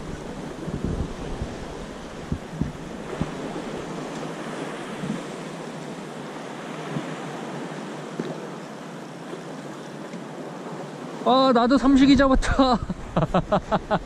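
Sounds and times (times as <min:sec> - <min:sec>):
wind on microphone: 0:00.0 - 0:05.4
water against boat hull: 0:00.0 - 0:05.9, 0:06.6 - 0:10.5.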